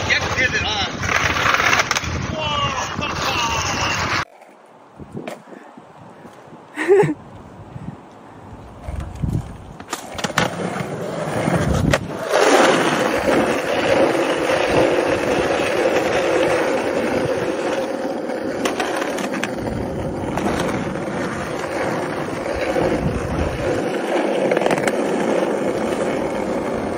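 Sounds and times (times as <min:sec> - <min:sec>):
skateboard wheels rolling on concrete: 0:00.0 - 0:26.9
skateboard clicks: 0:01.0 - 0:02.2, 0:08.1 - 0:26.9.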